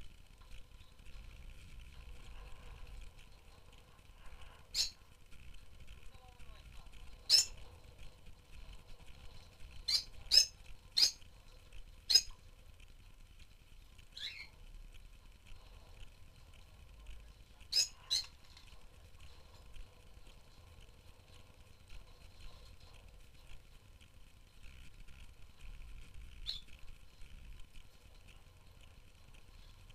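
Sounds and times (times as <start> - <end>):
faint flock twittering: 4.6 - 5.0, 7.1 - 7.7, 9.8 - 11.2, 12.1 - 12.3, 14.1 - 14.6, 17.6 - 18.4, 26.4 - 26.8
lovebirds shrill chirps: 4.7 - 5.0, 7.2 - 7.6, 9.8 - 11.2, 12.1 - 12.3, 14.1 - 14.5, 17.7 - 18.3, 26.4 - 26.7.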